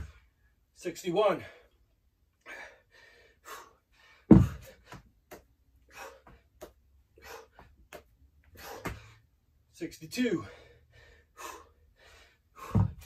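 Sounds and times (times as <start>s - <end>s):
man panting hard: 2.4s - 5.1s, 5.8s - 9.3s, 10.3s - 13.0s
heavy thud on floor: 4.3s - 4.7s, 12.7s - 13.0s.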